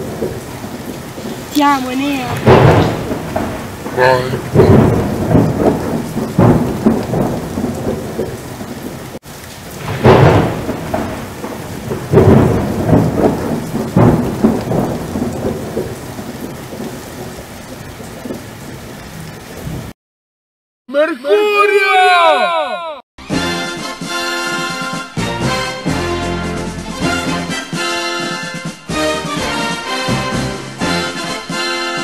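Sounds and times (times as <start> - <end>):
heavy rain hiss: 0.0 - 19.9
rolling thunder claps: 0.0 - 19.9.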